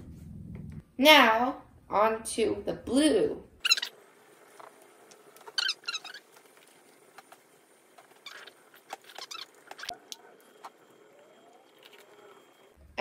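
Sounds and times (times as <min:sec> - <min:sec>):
plastic jar clicks and squeaky scrapes: 0:08.0 - 0:10.0.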